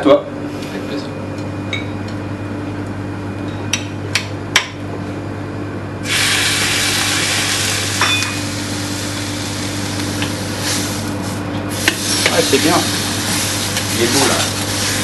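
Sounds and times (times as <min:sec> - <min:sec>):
steady low hum: 0:00.0 - 0:15.0
meat sizzling in a pan: 0:06.1 - 0:11.0, 0:11.7 - 0:15.0.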